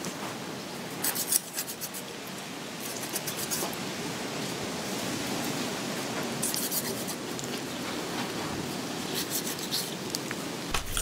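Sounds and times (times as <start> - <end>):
knife cutting raw meat: 10.7 - 11.0.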